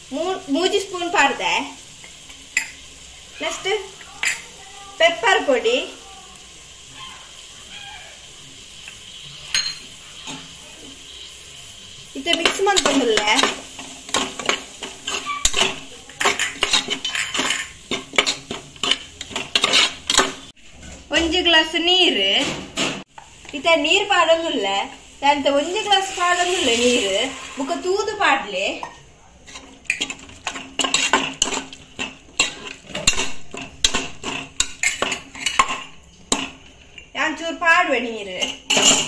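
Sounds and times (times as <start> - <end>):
metal spoon scraping pot: 12.2 - 21.1, 28.8 - 37.1, 38.3 - 39.0.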